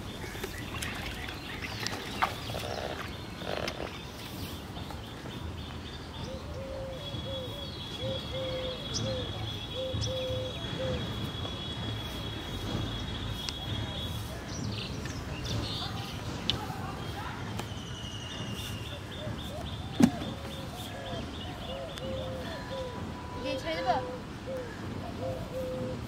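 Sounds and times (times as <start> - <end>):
birds calling: 0.0 - 26.0.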